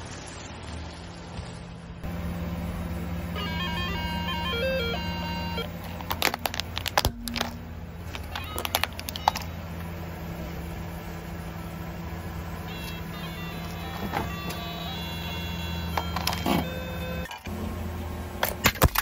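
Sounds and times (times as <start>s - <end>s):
car engine idling: 0.8s - 19.0s
toy guitar beeping tune: 3.4s - 6.2s, 8.2s - 9.6s, 12.6s - 17.4s
plastic cracking and snapping: 5.8s - 9.5s.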